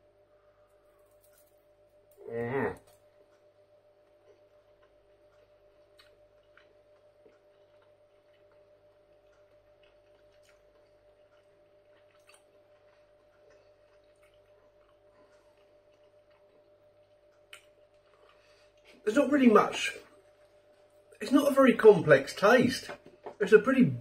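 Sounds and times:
faint steady hum: 0:00.0 - 0:24.0.

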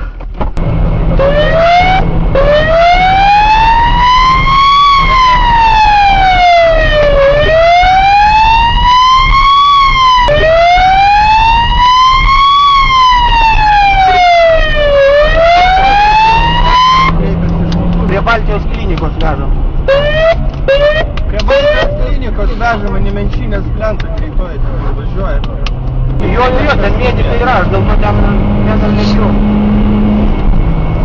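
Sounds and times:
car engine and road noise: 0:00.0 - 0:31.0
police siren wailing: 0:01.0 - 0:17.8, 0:19.6 - 0:22.4.

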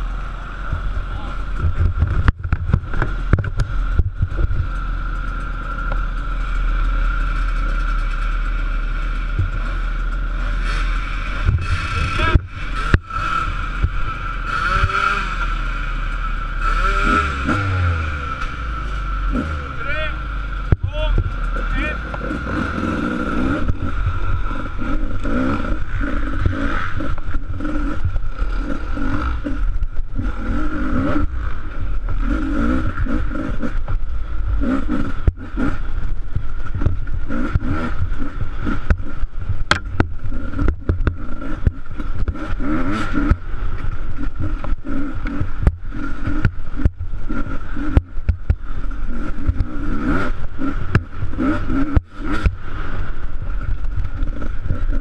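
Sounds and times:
motorcycle engine revving: 0:00.0 - 0:55.0
motorcycle knocking over bumps: 0:00.6 - 0:08.3, 0:09.2 - 0:10.2, 0:32.9 - 0:48.8, 0:50.4 - 0:52.8.

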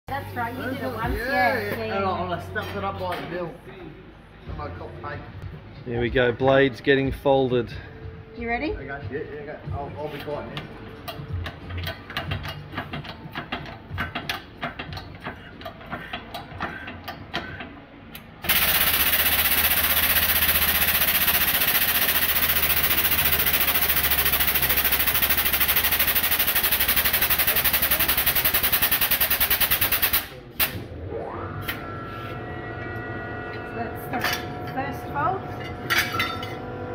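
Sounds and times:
hydraulic pump rattling: 0:18.4 - 0:30.2.

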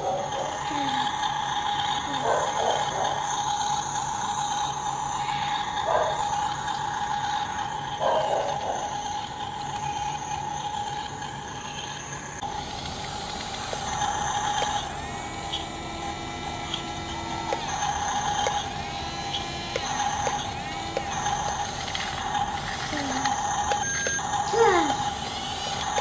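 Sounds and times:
steady hum: 0:00.0 - 0:26.0
toy motors whirring: 0:00.0 - 0:26.0.

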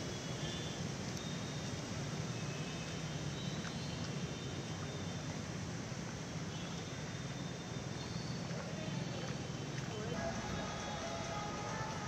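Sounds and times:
low even hum: 0:09.8 - 0:12.0.

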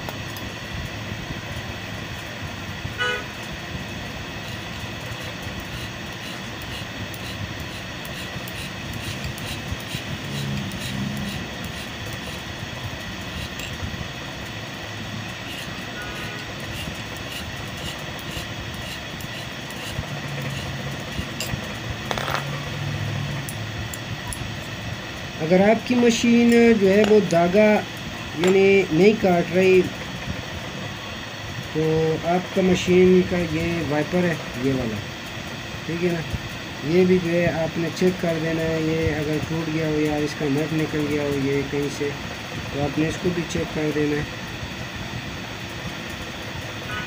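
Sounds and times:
background traffic noise: 0:00.0 - 0:47.0
car horn toot: 0:03.0 - 0:03.4
hand file scraping steel: 0:05.6 - 0:12.5, 0:15.4 - 0:21.5.

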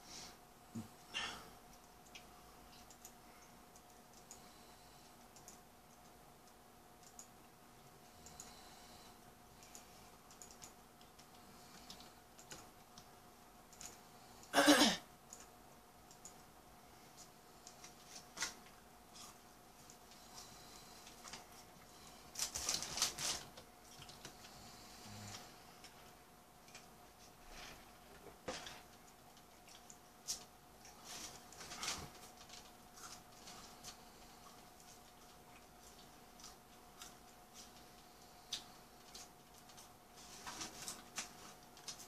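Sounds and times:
steady low hum: 0:00.0 - 0:42.0
computer mouse clicks: 0:01.7 - 0:04.5, 0:05.2 - 0:07.4, 0:08.2 - 0:08.8, 0:09.6 - 0:13.1, 0:13.7 - 0:14.5, 0:15.3 - 0:16.5.

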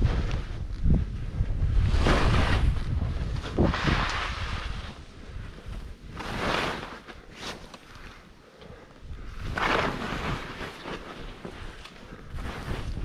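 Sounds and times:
wind rushing over microphone: 0:00.0 - 0:07.3, 0:09.0 - 0:13.0
skis scraping snow: 0:01.7 - 0:08.2, 0:09.4 - 0:13.0.

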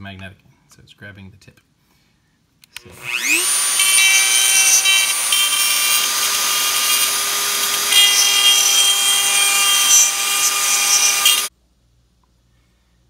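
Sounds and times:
rotary tool grinding plastic: 0:02.8 - 0:11.5.

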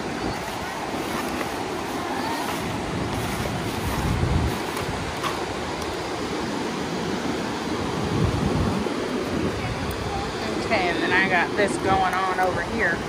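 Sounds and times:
ocean surf washing: 0:00.0 - 0:13.0
wind buffeting microphone: 0:00.0 - 0:13.0.

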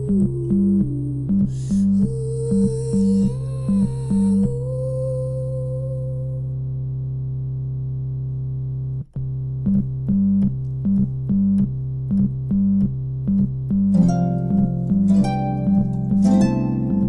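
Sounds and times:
synthesizer music: 0:13.4 - 0:17.0.

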